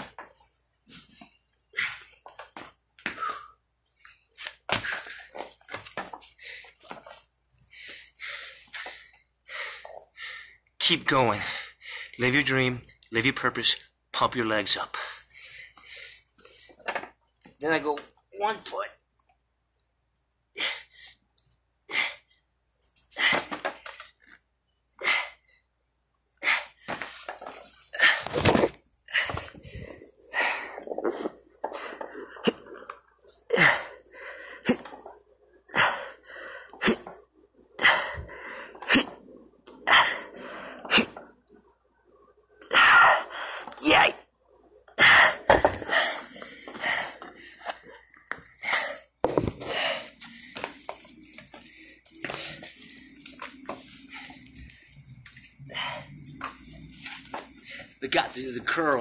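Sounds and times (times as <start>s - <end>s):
man breathing forcefully: 7.7s - 10.6s, 29.1s - 32.3s, 35.7s - 37.1s, 37.8s - 39.1s, 45.0s - 53.1s, 55.7s - 56.2s
man breathing out forcefully: 37.8s - 39.2s, 48.5s - 52.9s.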